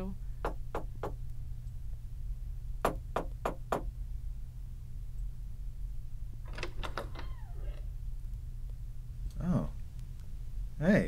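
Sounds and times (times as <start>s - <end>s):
low steady hum: 0.0s - 11.0s
knuckles knocking on wooden door: 0.4s - 1.2s, 2.8s - 3.9s.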